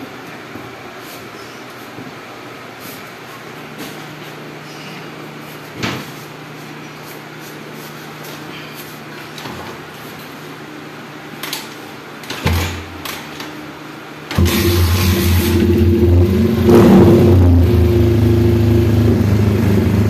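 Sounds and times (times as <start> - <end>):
engine knocks and clunks: 14.3 - 20.0
low hum: 14.4 - 20.0.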